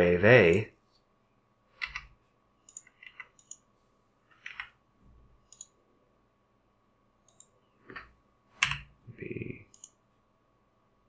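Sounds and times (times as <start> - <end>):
computer mouse clicks: 1.8 - 3.7, 5.4 - 5.8, 7.2 - 8.9, 9.7 - 10.0.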